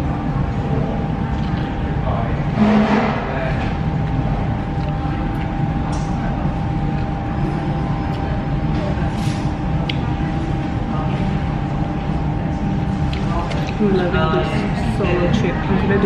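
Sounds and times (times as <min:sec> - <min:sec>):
faint hum: 0:00.0 - 0:16.0
low background rumble: 0:00.0 - 0:16.0
crunchy bread being chewed: 0:03.9 - 0:05.6.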